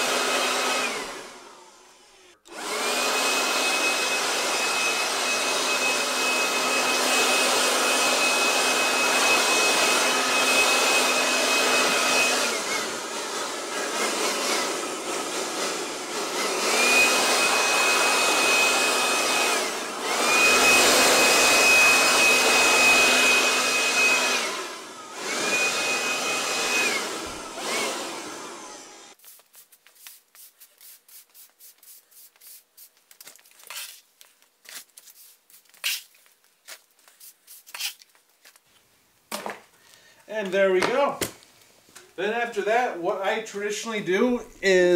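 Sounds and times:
handheld blower whining: 0:00.0 - 0:29.2.

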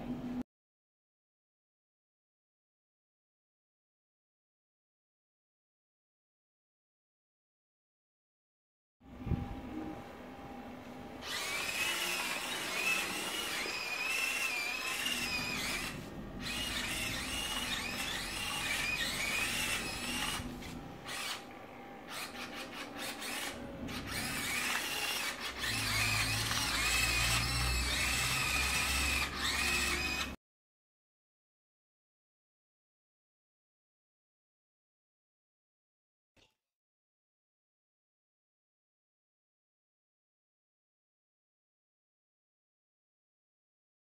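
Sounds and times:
servo motors whining: 0:11.2 - 0:30.4.

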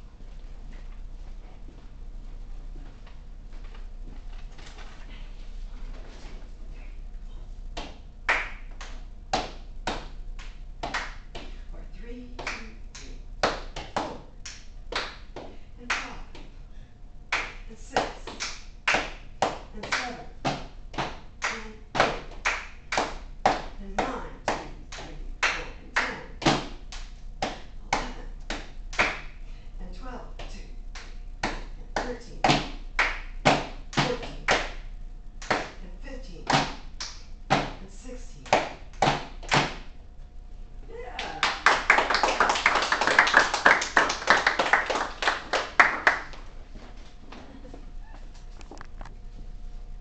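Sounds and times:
group clapping in rhythm: 0:07.8 - 0:11.6, 0:12.4 - 0:16.5, 0:17.3 - 0:29.4, 0:30.4 - 0:35.8, 0:36.4 - 0:37.8, 0:38.4 - 0:39.9, 0:41.2 - 0:46.5.

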